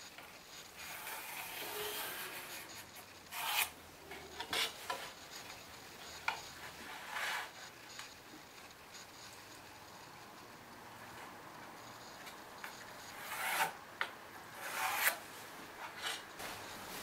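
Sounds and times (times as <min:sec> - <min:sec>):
square scraping across wood: 0:00.8 - 0:03.7, 0:06.8 - 0:07.7, 0:13.1 - 0:13.8, 0:14.6 - 0:15.2.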